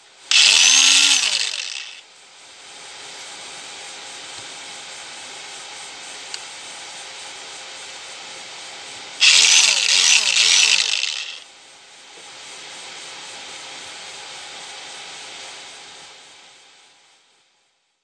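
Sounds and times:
angle grinder motor whine: 0.3s - 2.0s, 9.2s - 11.4s
steady hiss: 11.4s - 17.9s.

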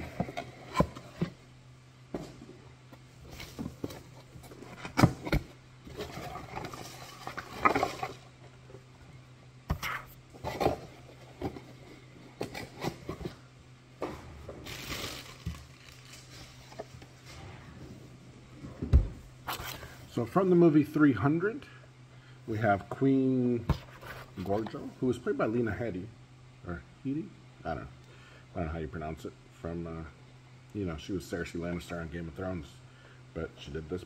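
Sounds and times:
rustling packaging: 14.6s - 17.0s.

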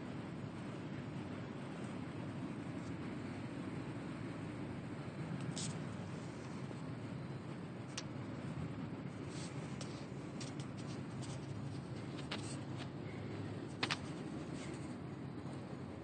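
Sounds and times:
low background hum: 0.0s - 16.0s
camera handling clicks and rubs: 9.4s - 12.9s.

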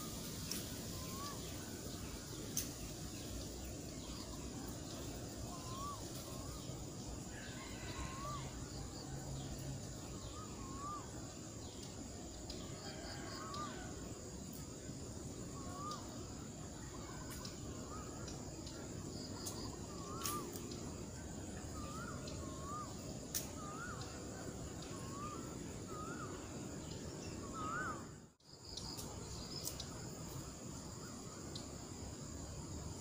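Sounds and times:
bird calling: 0.0s - 9.2s, 10.1s - 11.6s, 15.4s - 28.2s
high insect drone: 0.0s - 33.0s.

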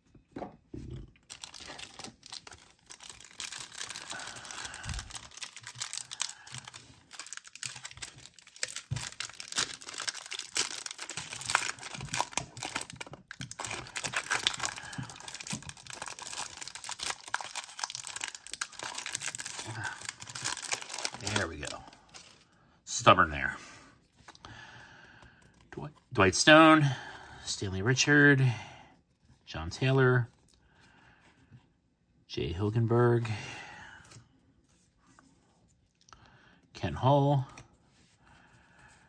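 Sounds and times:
foil wrapper tearing and crinkling: 1.3s - 22.3s.

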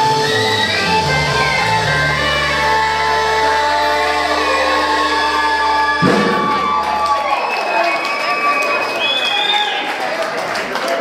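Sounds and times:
steady bass note: 5.8s - 7.0s
sharp full-band hit: 6.0s - 7.1s.

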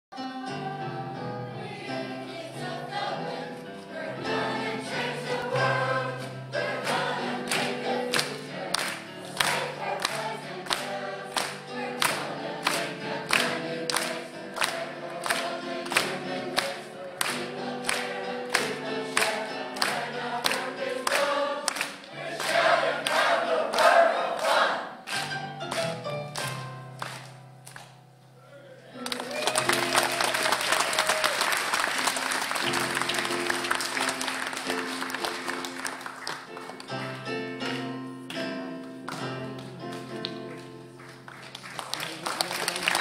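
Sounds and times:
mixed choir singing: 0.1s - 25.1s.

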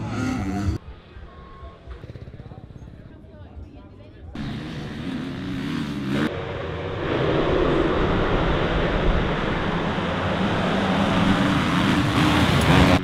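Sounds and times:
motocross bike engines running: 4.4s - 6.8s, 9.3s - 13.0s.

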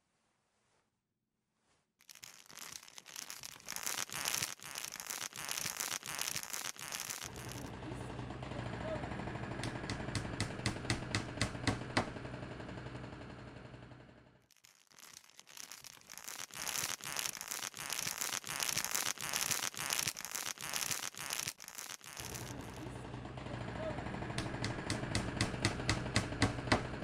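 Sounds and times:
dense crackling and rustling: 2.0s - 7.7s, 14.5s - 22.9s.

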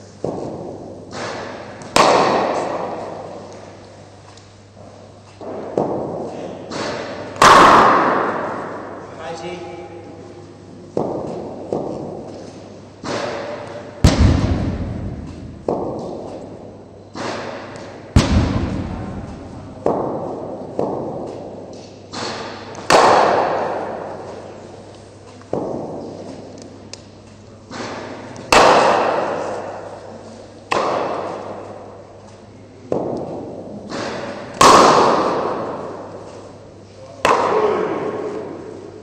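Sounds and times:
cricket ball knocking on bat: 10.9s - 12.4s, 13.0s - 16.6s, 17.2s - 21.7s, 25.5s - 26.3s.

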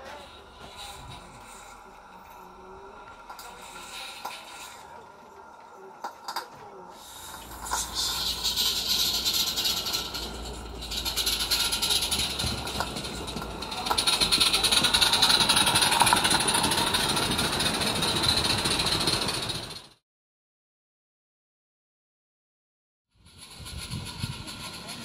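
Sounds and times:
steam hiss: 0.0s - 19.8s, 23.3s - 25.0s
steam locomotive exhaust beats: 0.0s - 20.0s, 23.2s - 25.0s
wheels on track: 0.0s - 20.0s, 23.2s - 25.0s.

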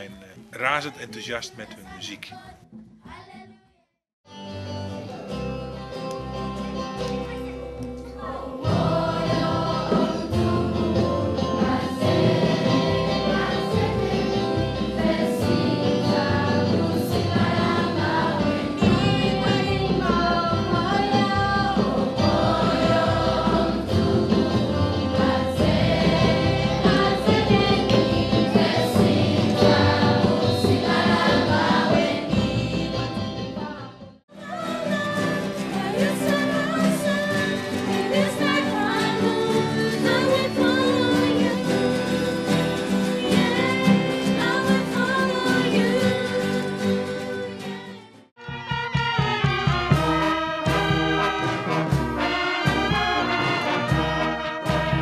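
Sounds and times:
drums: 4.3s - 55.0s
children's choir singing gospel: 6.2s - 48.2s.

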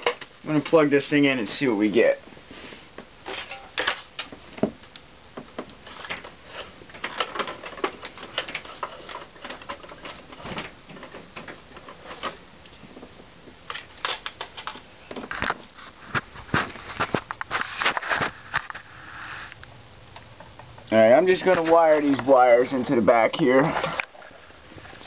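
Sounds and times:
hands handling electronics clicking: 3.3s - 18.9s.

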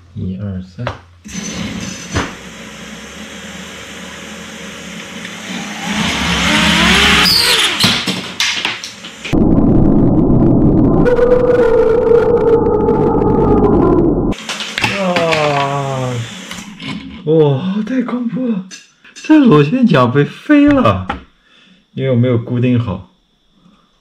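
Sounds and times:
drone motors whirring whine: 1.3s - 7.8s, 9.2s - 14.4s
deep low rumble with hum: 9.3s - 14.4s.

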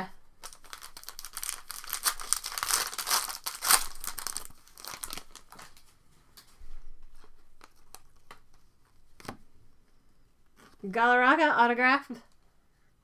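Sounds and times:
wrapper tearing and crinkling: 0.4s - 5.8s.

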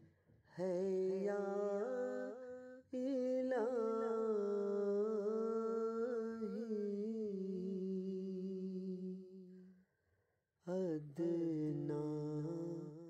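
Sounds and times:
person singing devotional song: 0.5s - 9.7s, 10.7s - 13.0s.

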